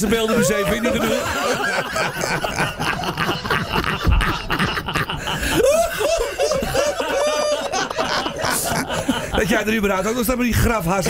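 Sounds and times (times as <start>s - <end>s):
high ha-ha-ha laughs: 0.0s - 9.6s
group of people laughing: 0.0s - 10.2s.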